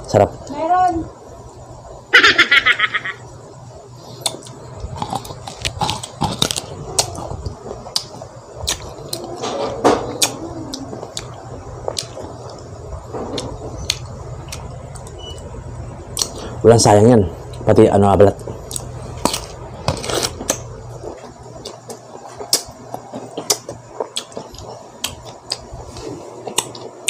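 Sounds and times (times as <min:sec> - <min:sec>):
close-up chewing with crunches: 0:04.2 - 0:09.4, 0:18.4 - 0:27.0.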